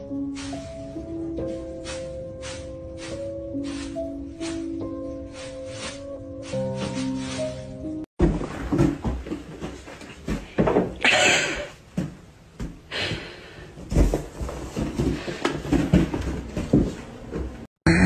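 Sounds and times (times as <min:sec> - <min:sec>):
cat thumping and scuffling: 0:08.2 - 0:11.1, 0:13.8 - 0:17.7.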